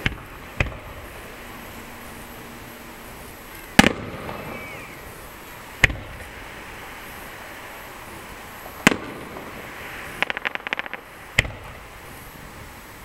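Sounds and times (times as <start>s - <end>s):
firework bangs with echo: 0.0s - 1.3s, 3.7s - 5.0s, 5.8s - 6.4s, 8.8s - 12.0s.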